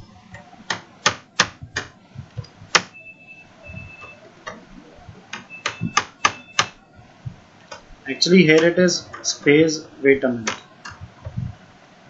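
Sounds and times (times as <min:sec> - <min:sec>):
keyboard keys clicking: 0:03.7 - 0:06.8.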